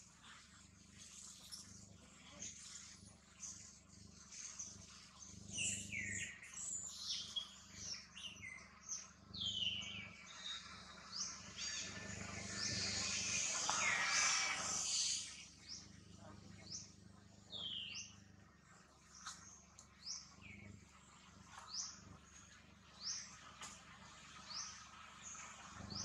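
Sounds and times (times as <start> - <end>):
high-pitched chirping calls: 11.3 - 15.5.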